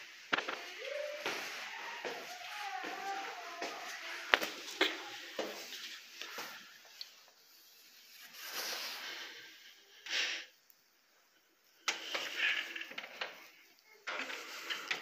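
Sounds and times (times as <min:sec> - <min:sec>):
short breathy hiss: 0:08.2 - 0:10.6.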